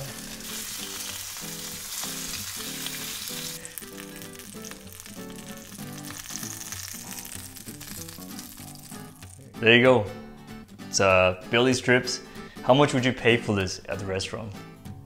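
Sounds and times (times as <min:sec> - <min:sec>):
fish sizzling in a frying pan: 0:00.0 - 0:09.5
quiet music with regular beat: 0:07.2 - 0:15.0.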